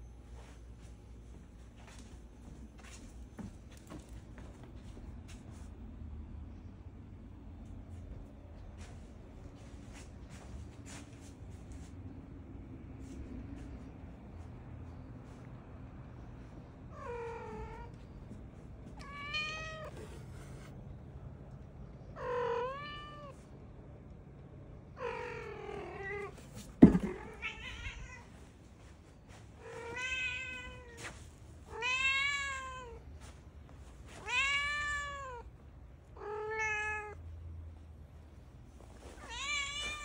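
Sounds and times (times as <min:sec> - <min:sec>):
cat meowing: 0:19.0 - 0:20.7, 0:22.2 - 0:23.4, 0:27.0 - 0:28.3, 0:31.7 - 0:33.0, 0:34.2 - 0:35.5, 0:36.2 - 0:37.2, 0:39.2 - 0:40.0.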